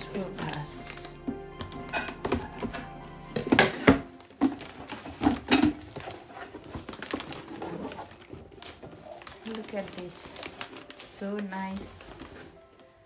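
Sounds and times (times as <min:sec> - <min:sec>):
packaging rustling: 0:00.0 - 0:13.0.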